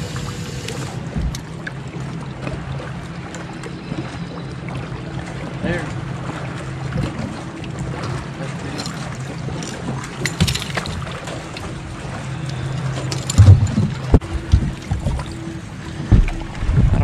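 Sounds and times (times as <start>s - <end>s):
heavy low thumps: 16.0s - 17.0s.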